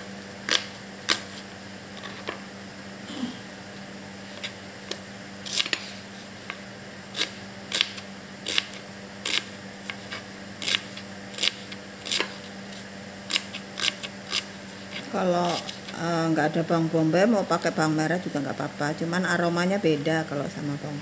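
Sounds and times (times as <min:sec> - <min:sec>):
faint steady hum: 0:00.0 - 0:21.0
knife chopping onion on board: 0:07.2 - 0:14.5.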